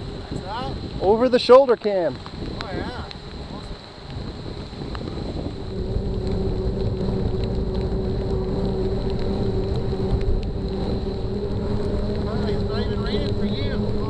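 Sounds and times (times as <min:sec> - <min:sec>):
wind rushing over microphone: 0:00.0 - 0:14.0
faint ticks: 0:01.8 - 0:14.0
steady hum: 0:05.1 - 0:14.0.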